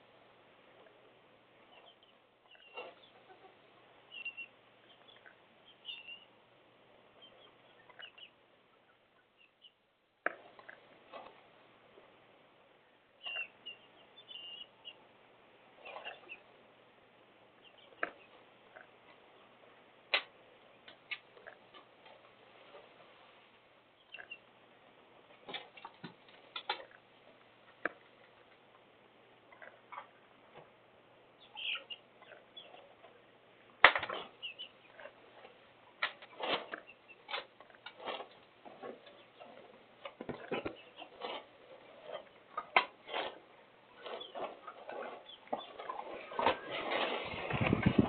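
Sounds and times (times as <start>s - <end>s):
chickens clucking: 1.6s - 6.3s, 7.2s - 9.7s, 13.2s - 15.2s, 15.8s - 16.6s, 17.6s - 23.0s, 24.0s - 24.6s, 25.3s - 30.7s, 31.3s - 48.0s.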